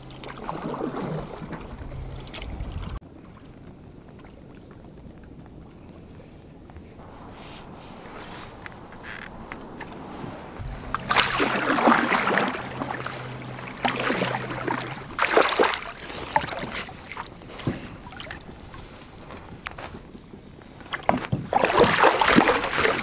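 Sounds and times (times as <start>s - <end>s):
fish thrashing water splashing: 7.0s - 19.2s, 20.8s - 23.0s.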